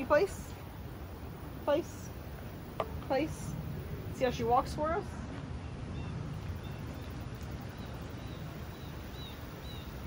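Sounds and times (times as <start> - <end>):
bird chirping: 5.9 - 10.0.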